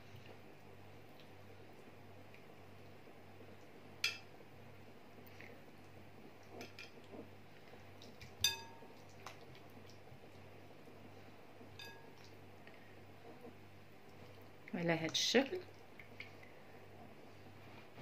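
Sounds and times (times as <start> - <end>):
low steady hum: 0.0 - 18.0
ceramic dish clinking: 8.4 - 8.8.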